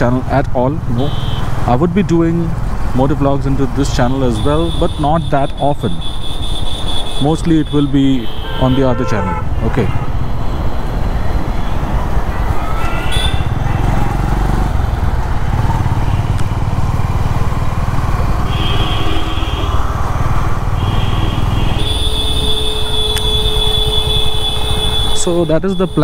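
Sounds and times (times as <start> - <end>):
motorcycle engine running: 11.8 - 24.8.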